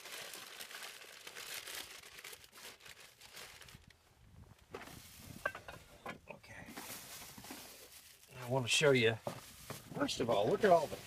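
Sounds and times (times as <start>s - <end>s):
crumpled newspaper rustling: 0.0s - 4.0s, 6.8s - 11.0s.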